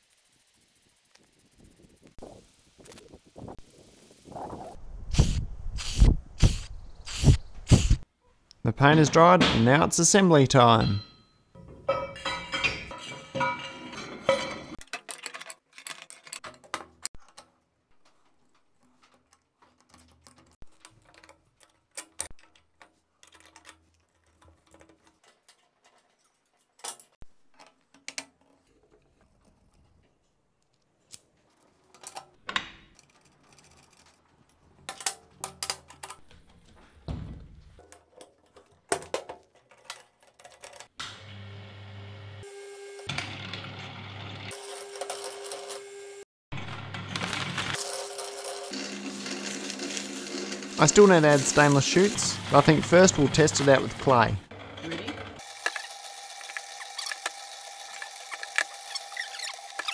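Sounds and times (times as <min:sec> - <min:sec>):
metal parts clinking and knocking: 0:10.7 - 0:29.3, 0:31.9 - 0:36.6, 0:37.8 - 0:41.0.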